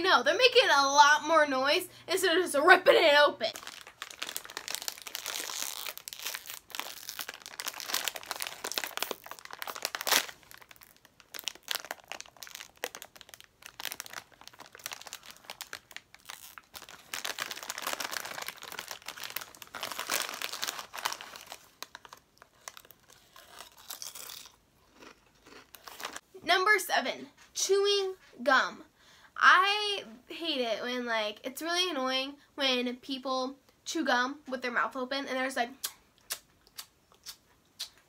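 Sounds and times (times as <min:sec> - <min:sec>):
chip bag crinkling: 0:03.5 - 0:26.2.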